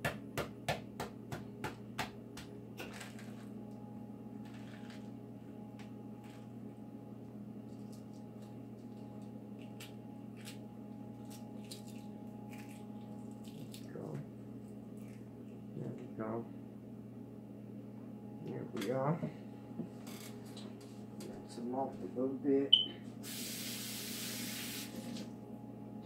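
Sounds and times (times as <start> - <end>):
steady low hum: 0.0 - 23.3, 25.0 - 26.0
eggshell cracking and peeling: 7.7 - 13.9.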